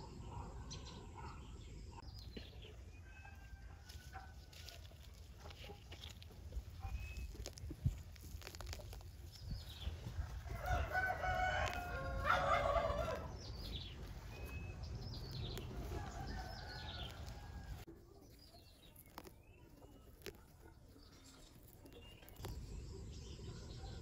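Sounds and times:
small birds chirping: 0.0 - 24.0
rooster crowing: 10.4 - 13.3, 15.8 - 17.8.

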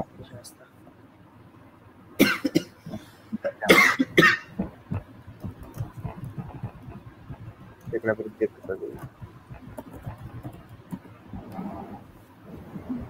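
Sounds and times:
man coughing: 2.2 - 2.8, 3.4 - 4.6.

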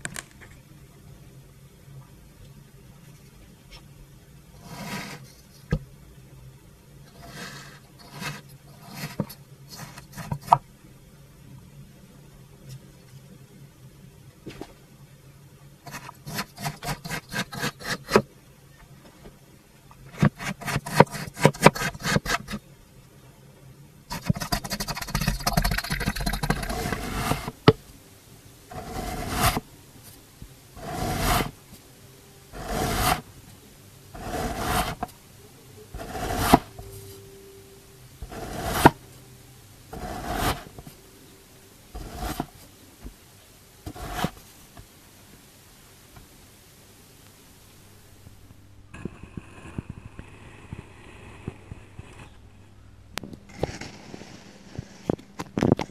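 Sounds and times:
blade cutting through sand: 26.7 - 27.5, 28.7 - 29.6, 30.8 - 31.6, 32.6 - 33.2, 34.2 - 35.0, 36.0 - 36.7, 38.2 - 39.0, 40.0 - 40.8.

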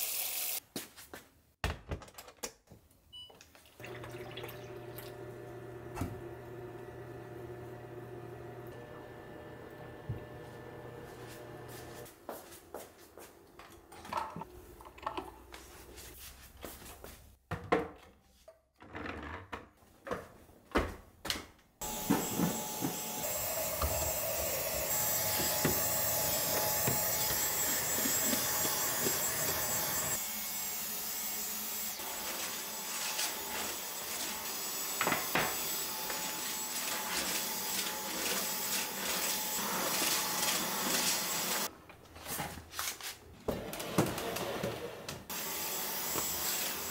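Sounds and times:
cordless vacuum whining: 4.7 - 12.0, 21.8 - 30.2, 32.0 - 41.7, 43.5 - 46.9.

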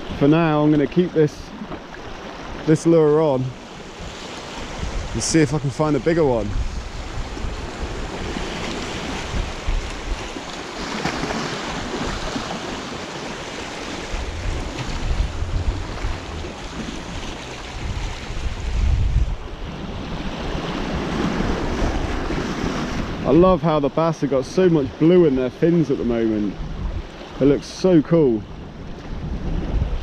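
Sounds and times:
sea washing over rocks: 0.0 - 19.0
wind buffeting microphone: 2.2 - 23.9, 26.0 - 30.0.

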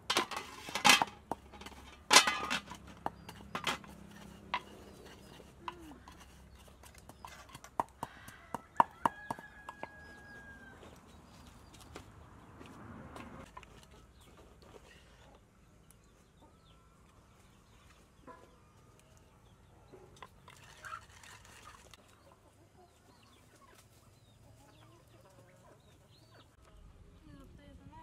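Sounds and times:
pestle knocking in mortar: 6.9 - 10.0
chickens clucking: 13.4 - 26.8.

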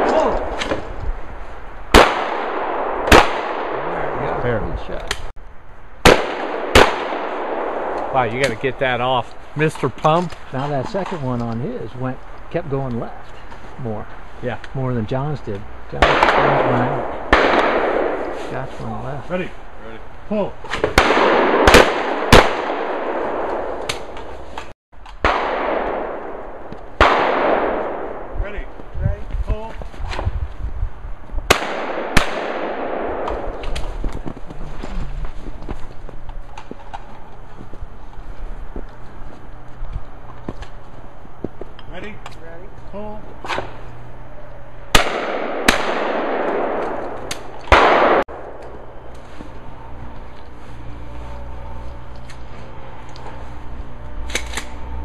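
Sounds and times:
shotgun shots with echo: 1.9 - 4.4, 6.0 - 8.6, 16.0 - 18.5, 20.7 - 24.3, 25.2 - 28.3, 31.5 - 33.8, 44.9 - 48.6.

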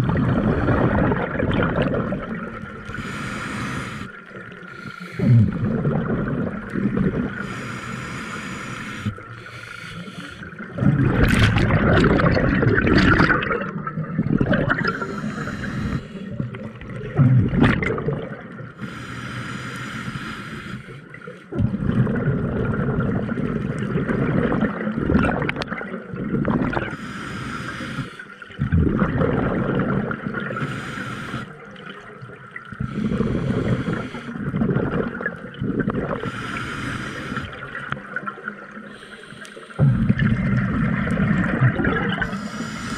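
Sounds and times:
bubbling exhale: 0.0 - 16.8, 32.7 - 38.0, 38.9 - 42.9
regulator hissing inhale: 2.9 - 5.4, 7.3 - 10.6, 14.8 - 16.4, 18.8 - 21.4, 26.9 - 28.5, 30.5 - 31.6, 32.8 - 34.4, 36.2 - 37.7, 38.8 - 40.1, 42.2 - 42.9.

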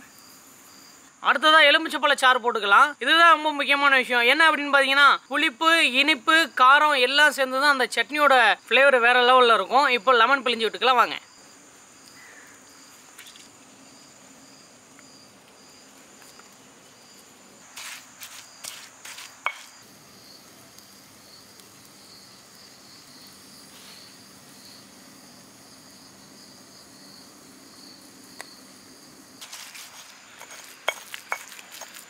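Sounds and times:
insects chirring: 0.0 - 32.0
stone roller knocking on stone slab: 18.6 - 19.7, 30.4 - 32.0.

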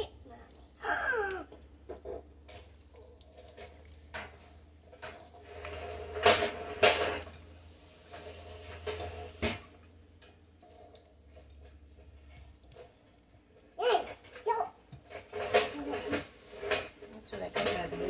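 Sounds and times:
utensil stirring in a mixing bowl: 1.4 - 18.0
utensil clinking against bowl: 14.4 - 18.0.

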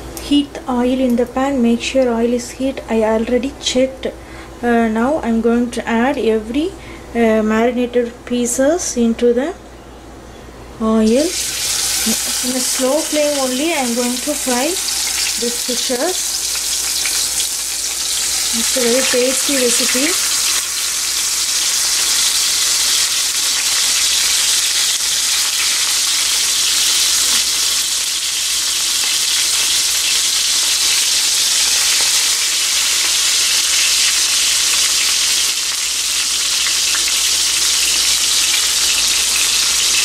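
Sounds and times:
fish sizzling in hot oil: 11.1 - 40.0.

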